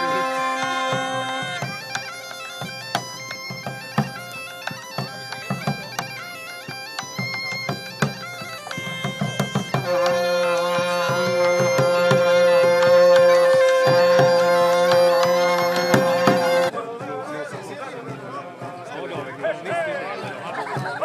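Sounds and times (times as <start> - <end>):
stepping melody: 0.0 - 16.7
regular drumbeats: 0.0 - 21.0.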